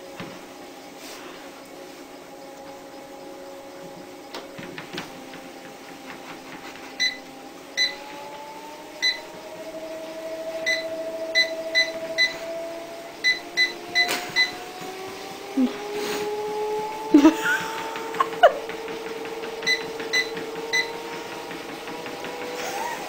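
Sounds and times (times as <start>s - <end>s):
treadmill motor whining: 0.0s - 23.0s
short electronic beeps: 10.6s - 12.4s, 13.2s - 14.6s.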